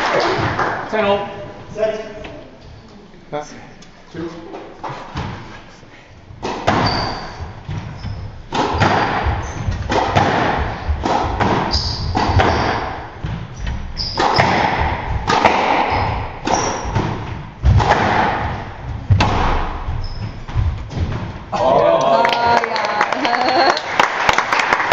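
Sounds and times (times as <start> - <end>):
shoes squeaking on wooden floor: 4.6 - 17.7, 18.4 - 21.5
rackets striking ball: 6.3 - 21.6
squash ball thudding off walls: 6.4 - 21.6.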